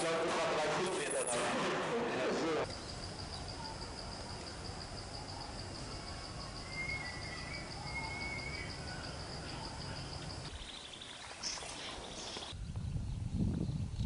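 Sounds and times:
high pulsing insect trill: 2.7 - 13.9.

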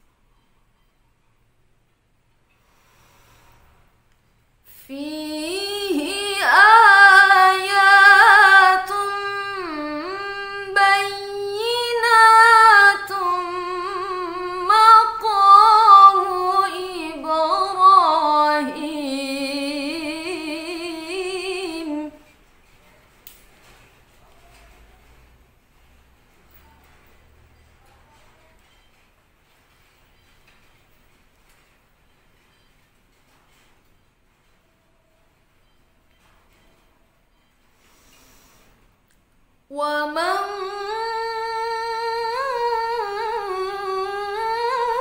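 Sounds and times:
woman reciting melodically: 4.7 - 22.4, 39.6 - 45.0.

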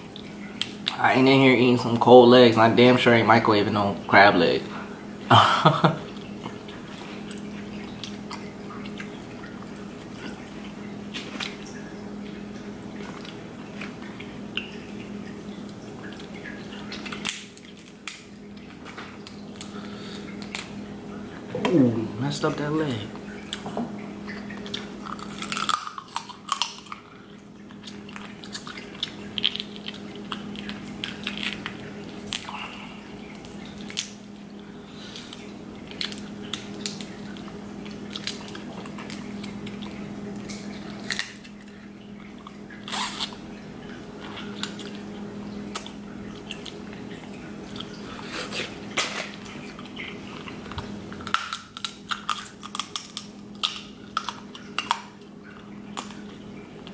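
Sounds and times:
crab shell cracking: 16.2 - 20.8, 24.6 - 27.1, 27.7 - 32.6, 35.1 - 41.9, 48.9 - 56.9
wet chewing and sucking: 24.3 - 56.9.

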